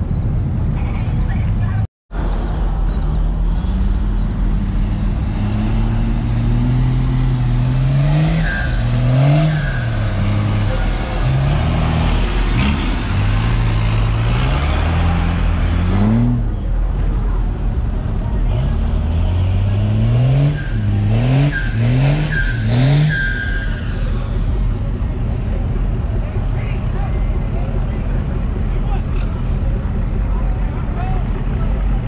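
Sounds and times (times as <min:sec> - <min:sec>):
pickup truck engine revving: 0:03.6 - 0:16.7, 0:18.2 - 0:25.0.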